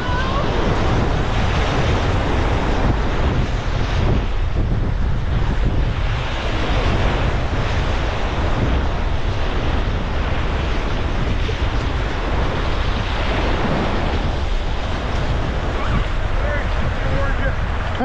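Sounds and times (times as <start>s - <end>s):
whitewater rapids rushing: 0.0s - 3.1s, 10.7s - 18.0s
wind buffeting microphone: 0.0s - 18.0s.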